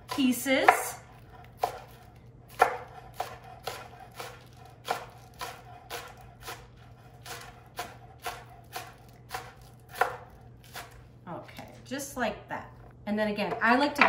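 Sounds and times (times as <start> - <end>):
knife chopping on wooden board: 0.0 - 11.0.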